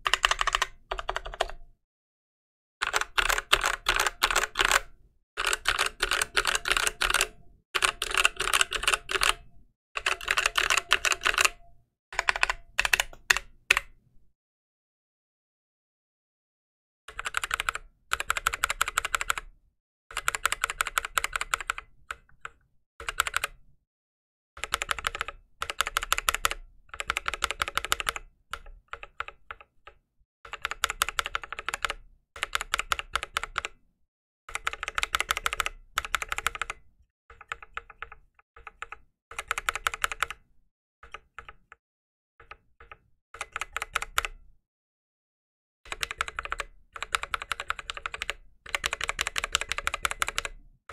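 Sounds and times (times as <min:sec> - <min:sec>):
keyboard key pressed rapidly: 0:00.0 - 0:01.6, 0:02.8 - 0:09.4, 0:10.0 - 0:11.6, 0:12.2 - 0:13.9, 0:45.9 - 0:50.6.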